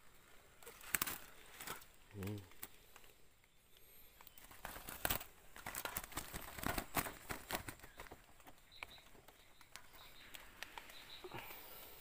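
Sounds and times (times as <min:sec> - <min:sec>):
net and dry leaves crackling: 0:00.0 - 0:08.2.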